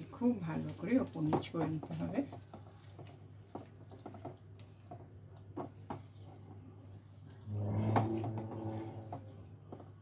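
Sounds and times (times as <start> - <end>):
spatula scraping a frying pan: 0.6 - 10.0
low hum with overtones: 7.5 - 9.3.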